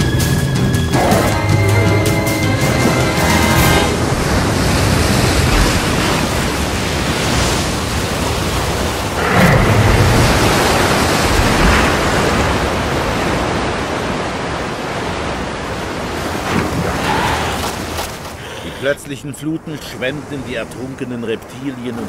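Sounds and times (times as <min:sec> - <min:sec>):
floodwater rushing down a creek: 0:00.9 - 0:22.0.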